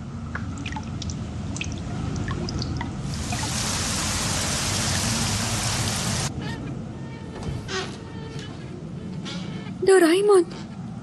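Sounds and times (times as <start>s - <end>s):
water drips: 0.2s - 6.3s
hiss of heavier rain: 3.0s - 6.3s
steady rain: 3.0s - 6.3s.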